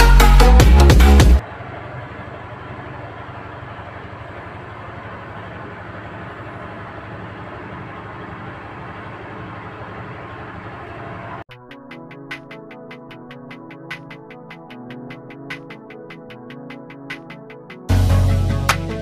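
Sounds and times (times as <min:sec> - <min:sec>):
machinery hum: 0:01.4 - 0:11.4.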